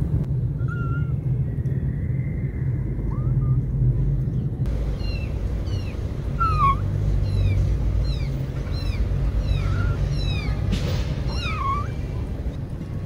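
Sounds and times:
steady low rumble: 0.0 - 13.0
kittens mewing: 5.0 - 12.6.

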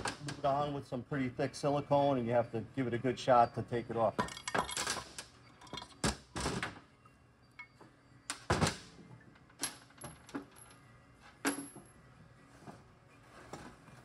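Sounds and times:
metal parts clinking on workbench: 4.2 - 6.0.

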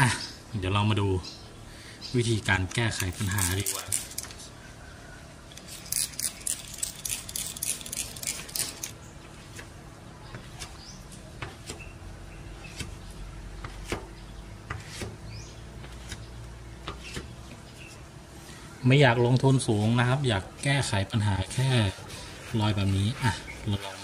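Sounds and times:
squeegee scraping wet glass: 2.7 - 4.4, 5.6 - 9.0.

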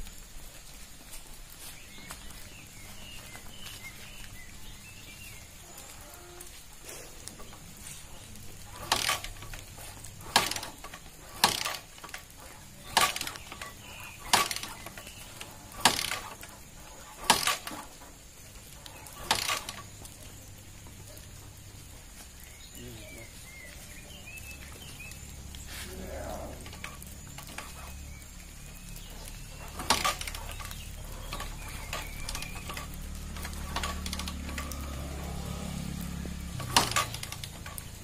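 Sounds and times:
engine briefly turning over: 8.6 - 18.0, 18.8 - 20.0, 29.0 - 38.0.

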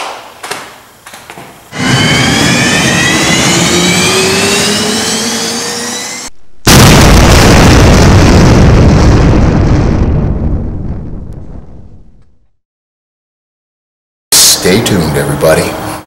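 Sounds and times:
engine-like rush rising in pitch: 1.7 - 6.3
loud blast: 1.7 - 12.4.

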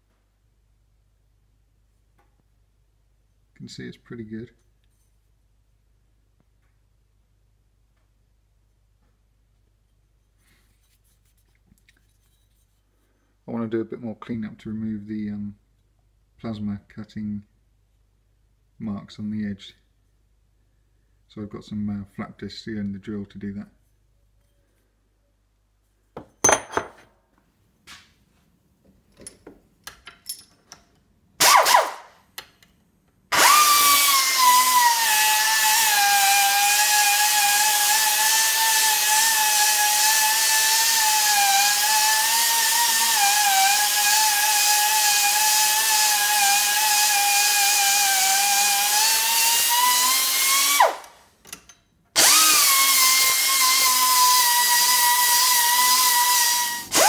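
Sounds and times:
power sander grinding metal: 33.4 - 51.0, 52.2 - 57.0.

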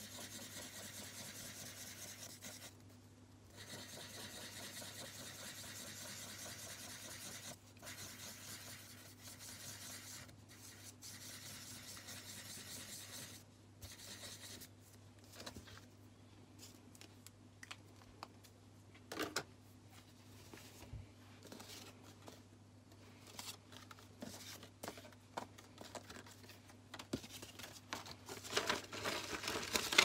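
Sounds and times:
marker pen scribbling on paper: 0.0 - 2.7, 3.5 - 14.7.

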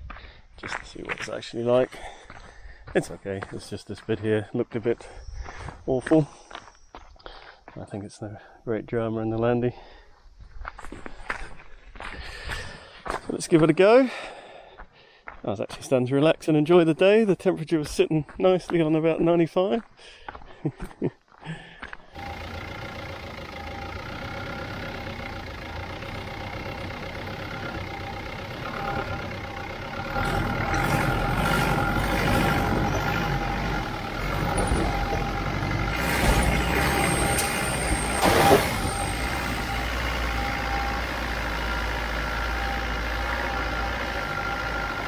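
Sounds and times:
tyres and body rumbling: 21.6 - 45.0
engine running under load: 22.1 - 45.0.

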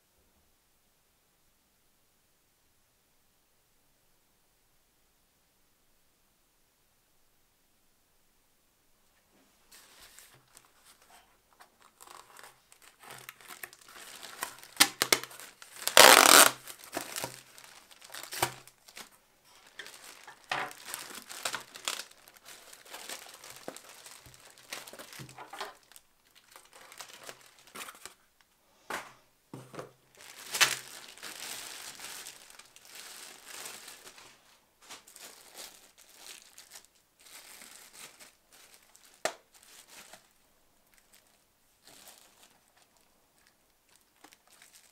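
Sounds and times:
plastic bag crinkling: 9.7 - 28.3, 30.0 - 44.9.

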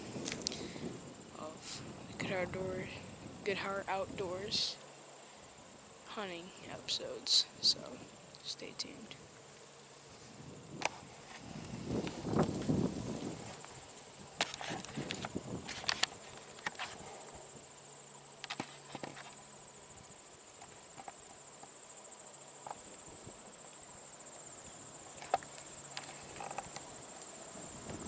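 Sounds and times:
insect chorus trilling: 0.0 - 28.0.

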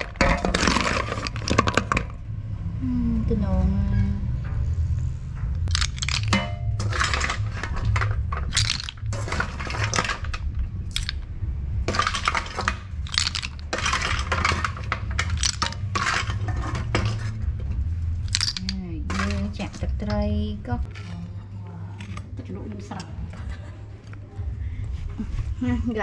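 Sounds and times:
snail shells clattering: 0.0 - 2.2, 5.6 - 11.2, 11.8 - 17.4, 18.2 - 20.0
low steady hum: 0.0 - 26.0.

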